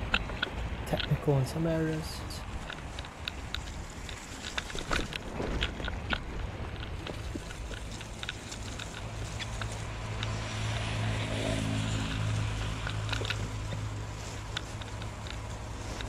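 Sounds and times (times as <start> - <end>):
bicycle tyres rolling through mud: 0.0 - 16.0
bike ticks and rattles: 0.0 - 16.0.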